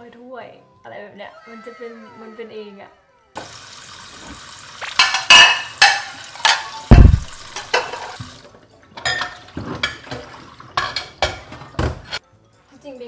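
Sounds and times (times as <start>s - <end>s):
tap water running into sink: 3.4s - 8.6s, 9.2s - 12.0s
dishes and cutlery clinking: 4.8s - 12.2s
dull heavy thump: 6.9s - 7.4s.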